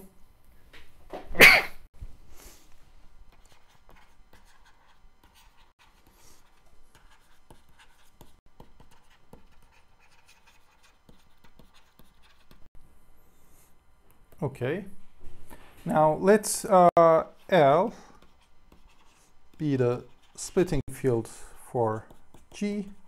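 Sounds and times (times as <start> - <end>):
stylus scratching on screen: 3.3 - 12.7, 17.2 - 23.0.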